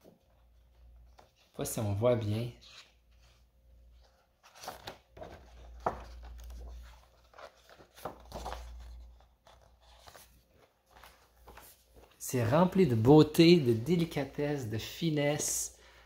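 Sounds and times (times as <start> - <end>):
comic book pages turning: 2.2 - 3.4, 4.0 - 12.2
low bumps handling book: 4.0 - 12.2.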